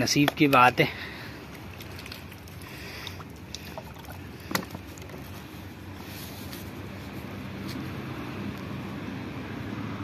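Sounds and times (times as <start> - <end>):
hands kneading wet dough: 0.0 - 7.8
low background rumble: 0.9 - 7.3.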